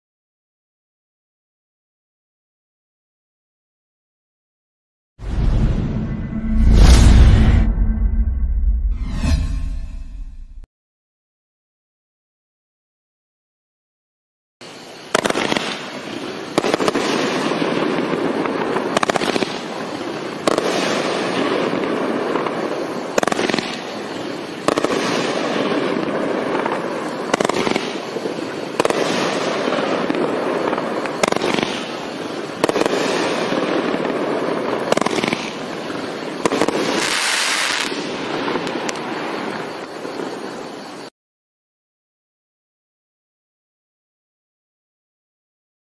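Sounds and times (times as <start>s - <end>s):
firework burst hissing: 14.6s - 41.1s
firework reports: 14.6s - 41.1s.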